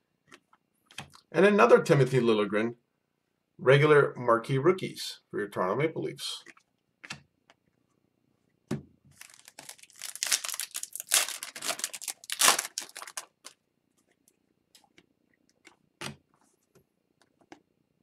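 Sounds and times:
foil wrapper crinkling and tearing: 9.1 - 13.6.

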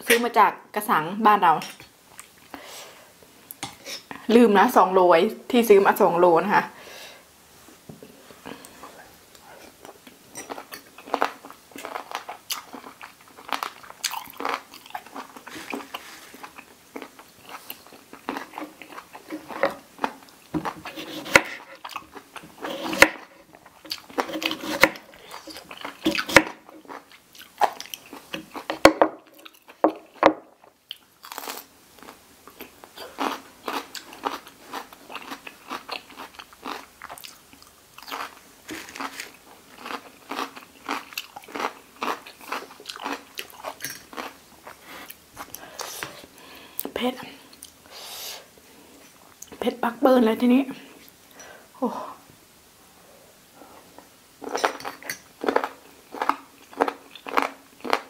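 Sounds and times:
crunching and chewing: 9.8 - 45.9, 54.0 - 58.0.

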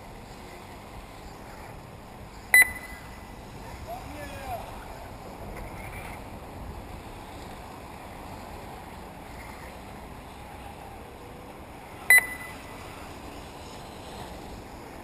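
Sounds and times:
steady background noise: 0.0 - 15.0
high-pitched electronic beep: 2.6 - 3.0, 12.1 - 12.6.

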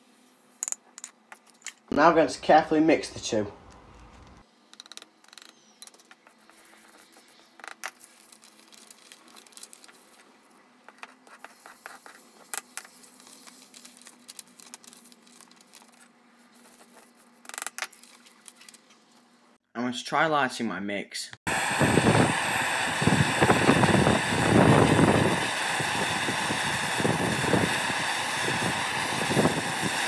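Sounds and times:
chisel scraping on paper: 10.9 - 13.7.

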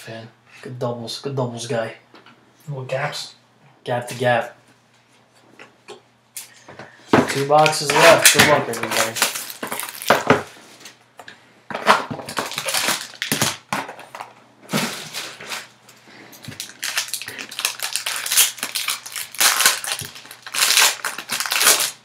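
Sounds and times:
plastic wrapper crinkling and tearing: 7.6 - 11.0, 11.8 - 22.0.

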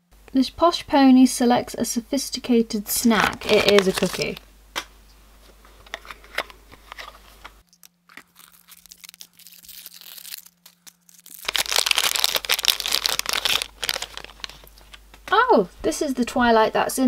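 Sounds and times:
foil wrapper crinkling and tearing: 3.0 - 4.4, 6.9 - 15.0.

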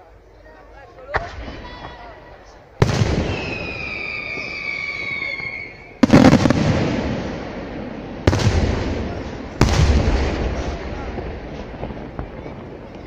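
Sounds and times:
firework whistles: 3.2 - 6.5.

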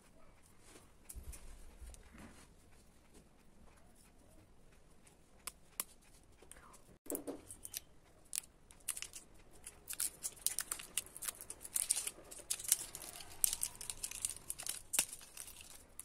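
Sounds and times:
plastic packaging crinkling and tearing: 7.5 - 16.0.

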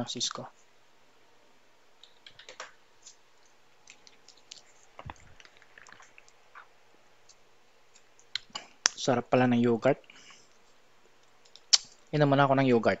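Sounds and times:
faint typing on keyboard: 2.0 - 6.4.

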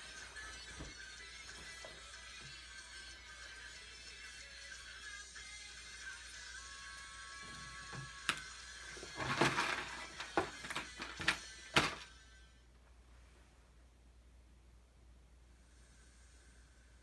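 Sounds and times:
faint music: 0.0 - 17.0
objects knocking and clattering: 9.0 - 12.0.

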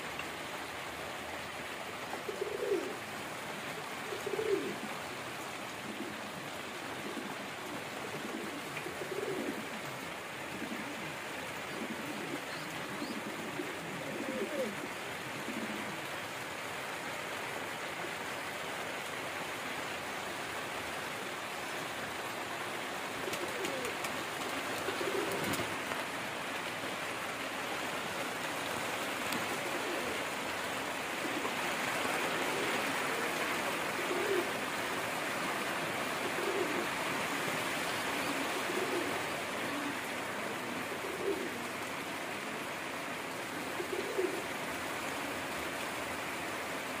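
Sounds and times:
steady hiss: 0.0 - 47.0
pigeons cooing: 1.7 - 16.4, 21.7 - 27.0, 27.9 - 45.4.

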